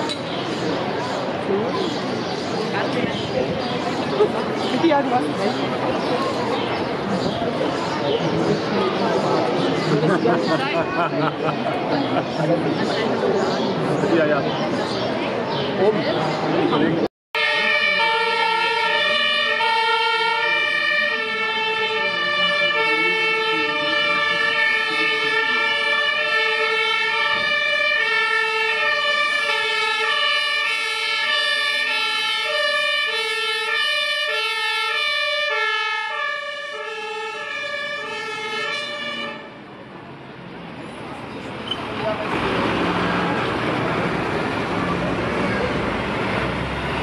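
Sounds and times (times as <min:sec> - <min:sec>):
vehicle engines: 0:00.0 - 0:47.0
two-tone siren: 0:17.4 - 0:39.7.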